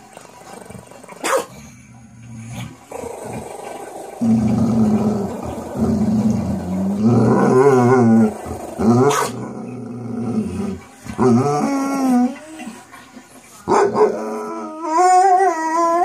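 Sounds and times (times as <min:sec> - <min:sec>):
dog growling: 0:00.5 - 0:12.8.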